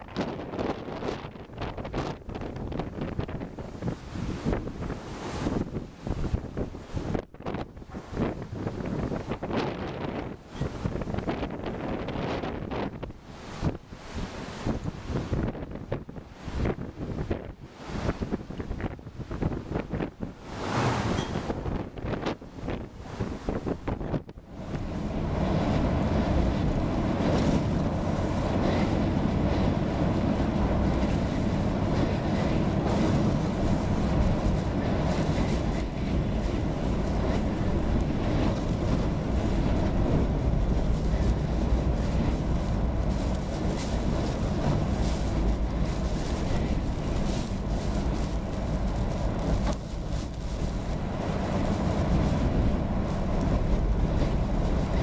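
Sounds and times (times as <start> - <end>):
wind buffeting car: 0.0 - 55.0
car interior rumble: 23.7 - 55.0
tyre noise on wet road: 31.6 - 55.0.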